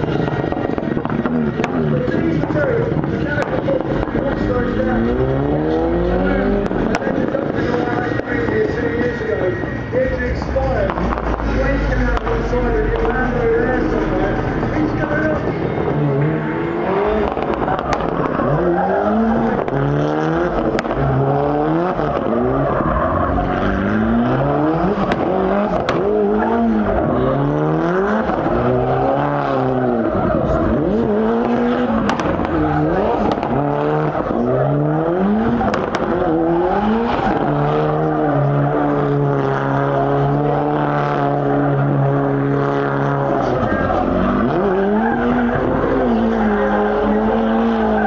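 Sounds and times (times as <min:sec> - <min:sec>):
engine anti-lag cracks: 0:00.0 - 0:05.3, 0:10.8 - 0:13.3, 0:17.1 - 0:21.2, 0:21.8 - 0:39.9
car engine revving: 0:00.0 - 0:48.0
tyres squealing: 0:16.2 - 0:48.0.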